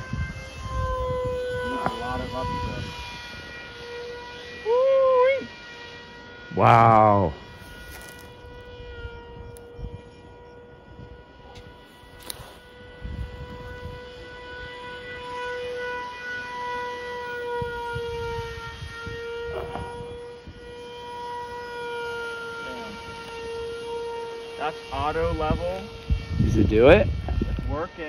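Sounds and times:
wind rumble on microphone: 0.0 - 3.7, 7.3 - 15.6, 17.3 - 21.3, 25.0 - 28.0
drone motors whining: 0.0 - 28.0.

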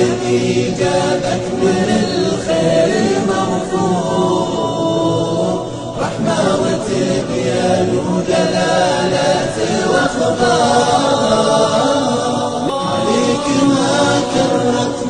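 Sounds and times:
chorus singing religious song: 0.0 - 15.0.

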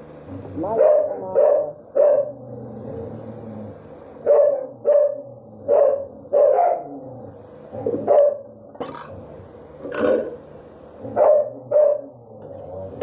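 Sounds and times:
dog barking: 0.8 - 2.4, 4.2 - 6.9, 8.0 - 8.4, 11.2 - 12.1.

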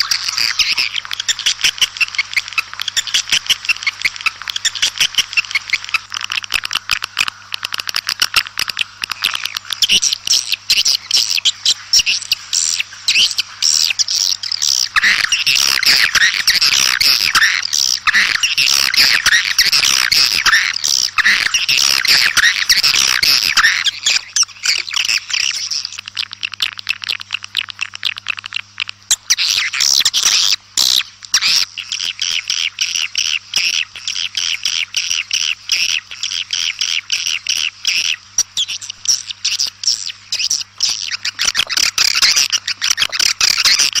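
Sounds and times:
swiftlets twittering: 7.9 - 33.0.

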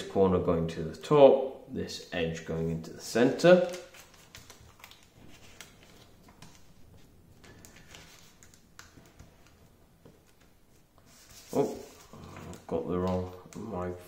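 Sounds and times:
paper rustling and crinkling: 3.4 - 13.7.

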